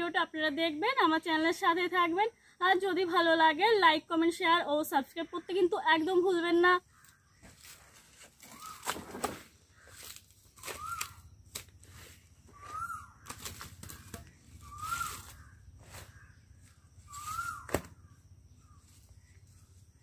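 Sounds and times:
hen calling: 0:12.5 - 0:18.8.

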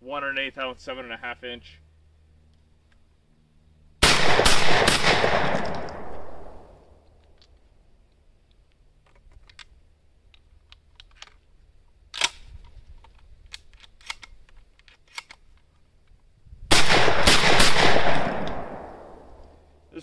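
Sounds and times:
shotgun gunshot: 0:04.0 - 0:06.6, 0:16.7 - 0:19.2
shells clicking into magazine: 0:12.1 - 0:15.8.

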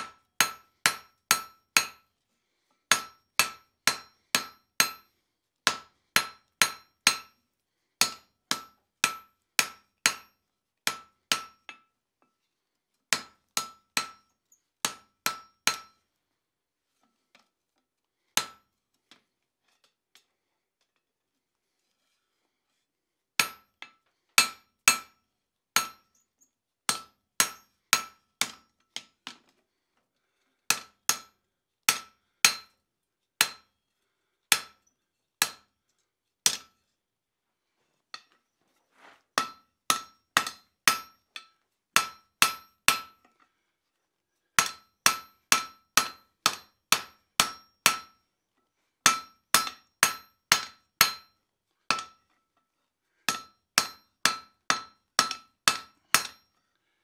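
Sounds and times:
hammer striking metal on anvil: 0:00.0 - 0:02.0, 0:02.9 - 0:05.1, 0:05.7 - 0:07.4, 0:08.0 - 0:11.9, 0:13.1 - 0:16.0, 0:18.4 - 0:18.6, 0:23.4 - 0:25.2, 0:25.8 - 0:26.2, 0:26.9 - 0:29.1, 0:30.7 - 0:31.3, 0:31.9 - 0:32.8, 0:33.4 - 0:33.7, 0:34.5 - 0:34.8, 0:35.4 - 0:35.6, 0:36.5 - 0:36.7, 0:39.4 - 0:43.2, 0:44.6 - 0:48.2, 0:49.0 - 0:52.2, 0:53.3 - 0:56.5.

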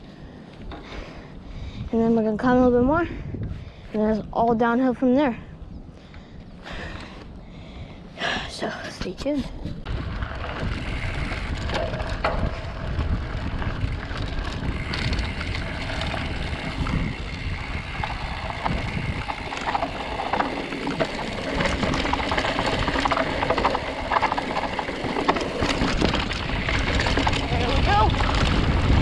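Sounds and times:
wind on microphone: 0:01.4 - 0:04.6, 0:08.9 - 0:29.0
bike rattling and clattering: 0:09.3 - 0:29.0
bike tyres on dirt trail: 0:09.6 - 0:29.0.

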